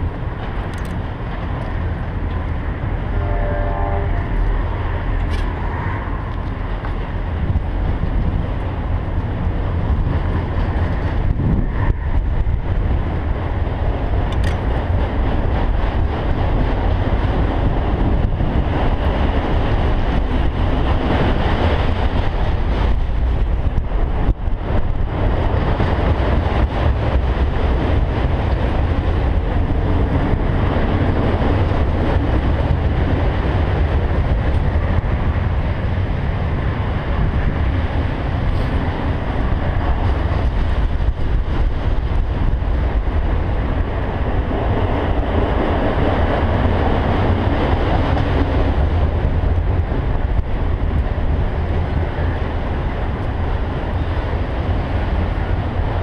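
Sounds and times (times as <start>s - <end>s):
freight cars rumbling on rails: 0.0s - 56.0s
sharp clicks: 14.3s - 14.6s.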